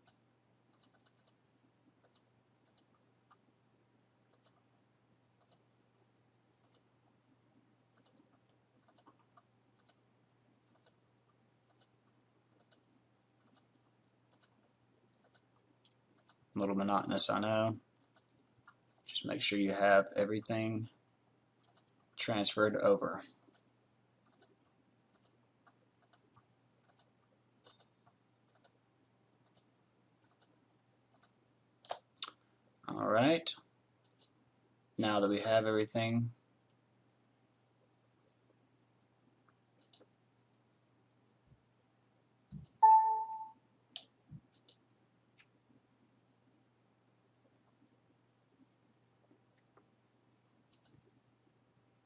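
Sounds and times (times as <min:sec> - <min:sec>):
computer mouse clicks: 0:00.0 - 0:01.4, 0:02.0 - 0:03.4, 0:04.3 - 0:04.8, 0:05.4 - 0:05.7, 0:06.6 - 0:06.9, 0:07.9 - 0:10.0, 0:10.6 - 0:16.5, 0:18.0 - 0:19.2, 0:21.6 - 0:22.2, 0:23.4 - 0:28.8, 0:29.4 - 0:32.4, 0:34.0 - 0:34.4, 0:39.5 - 0:40.1, 0:43.9 - 0:44.8, 0:50.7 - 0:51.1
faint low hum: 0:00.0 - 0:52.0.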